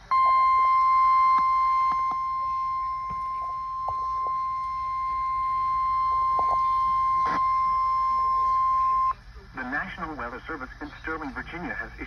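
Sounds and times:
steady alarm tone from radio speaker: 0.0 - 9.2.

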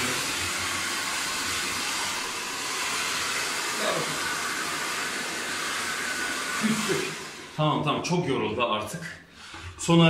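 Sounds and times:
hair dryer blowing: 0.0 - 8.0.

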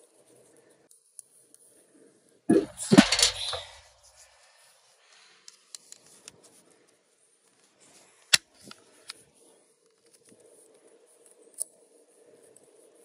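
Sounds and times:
tools knocking and rattling: 2.6 - 3.8.

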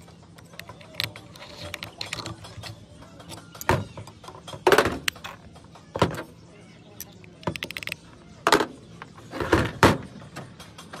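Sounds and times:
metal tools clicking and scraping: 0.0 - 5.9, 6.9 - 8.2.

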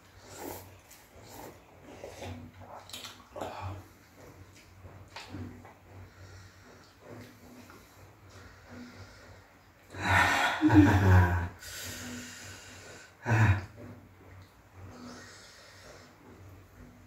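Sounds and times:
person gasping and huffing: 9.9 - 12.2.

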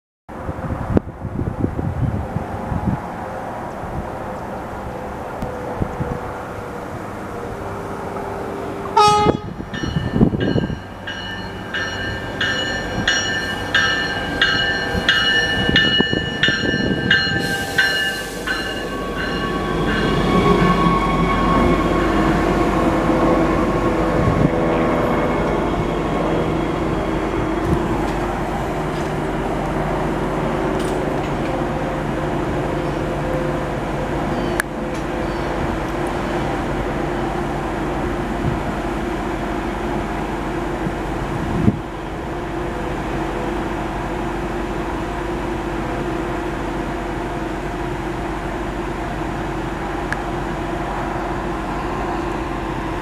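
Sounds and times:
train engine and wheels rumbling: 0.3 - 53.0
train horn: 8.9 - 9.8, 17.4 - 23.0
train bell ringing: 9.0 - 22.8, 34.3 - 34.6.

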